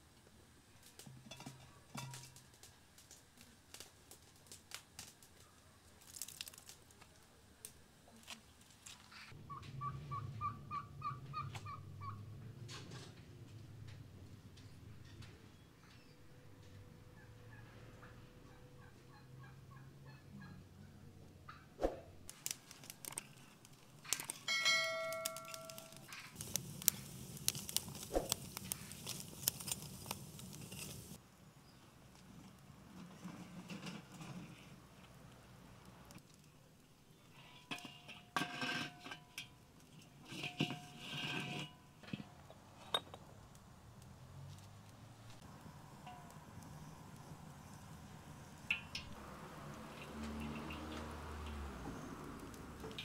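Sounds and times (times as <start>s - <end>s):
wood fire crackling: 0.2s - 9.1s, 21.8s - 31.2s, 32.0s - 53.0s
low rush of burning: 25.2s - 31.2s, 43.5s - 53.0s.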